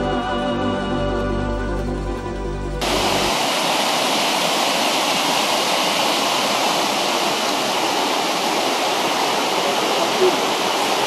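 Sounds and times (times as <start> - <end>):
river rushing over rocks: 2.8 - 11.0.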